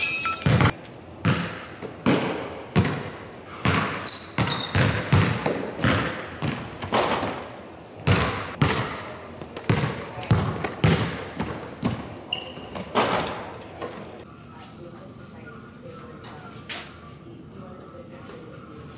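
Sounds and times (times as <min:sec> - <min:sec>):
basketball bouncing on wooden floor: 0:00.5 - 0:07.4, 0:08.0 - 0:13.4
shoe squeaking: 0:04.0 - 0:05.1, 0:11.3 - 0:14.0.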